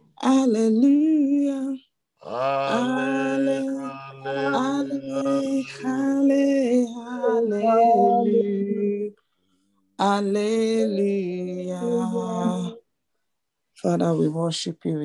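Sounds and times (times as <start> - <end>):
person singing praise chorus: 0.2 - 9.1, 10.0 - 12.8
steady low tone: 2.7 - 9.1.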